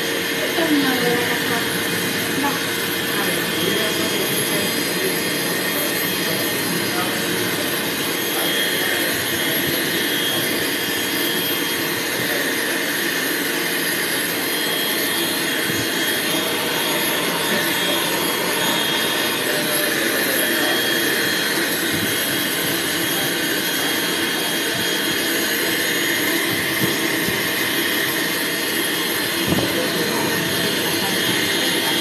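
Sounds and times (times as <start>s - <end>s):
grooming dryer blowing air: 0.0s - 32.0s.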